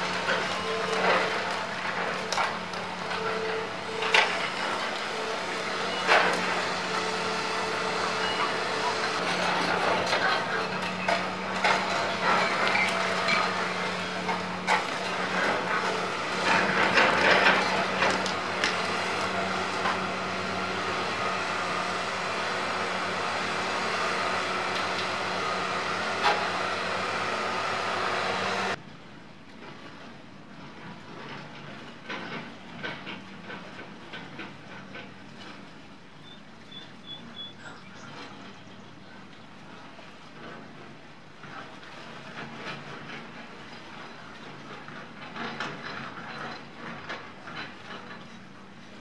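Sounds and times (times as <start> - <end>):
construction machinery humming: 0.0 - 28.8.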